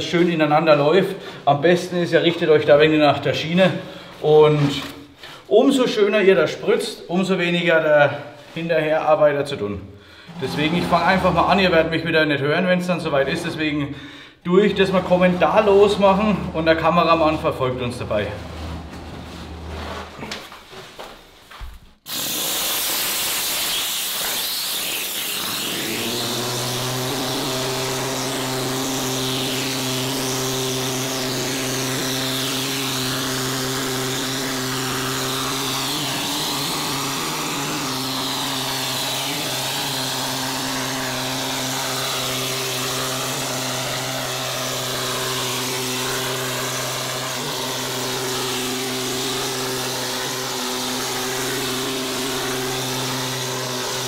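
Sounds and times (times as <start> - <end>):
machine hum: 10.3 - 12.2, 13.0 - 20.4, 25.3 - 54.0
spray gun hissing: 22.1 - 54.0.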